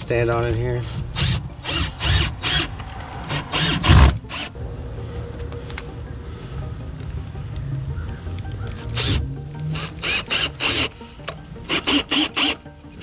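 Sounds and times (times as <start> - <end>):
cordless drill driving screws: 0.8 - 4.5, 8.8 - 10.9, 11.7 - 12.6.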